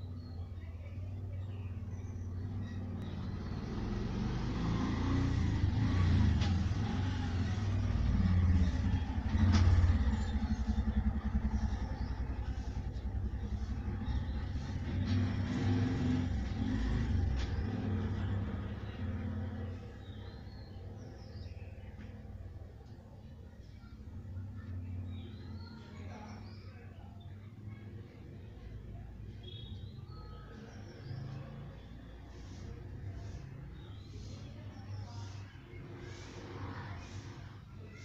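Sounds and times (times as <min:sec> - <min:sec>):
vehicle engine running: 0:00.0 - 0:26.3.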